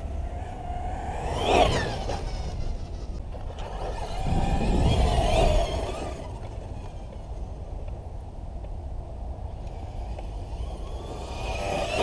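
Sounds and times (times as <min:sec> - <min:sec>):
electric motor whining: 0:00.2 - 0:07.5, 0:09.5 - 0:12.0
low rumble: 0:04.2 - 0:06.7.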